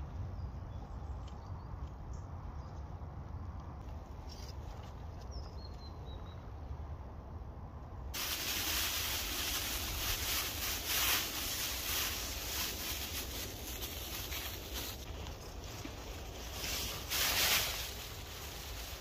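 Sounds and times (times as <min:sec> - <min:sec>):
foil blanket crinkling: 0:08.2 - 0:19.0.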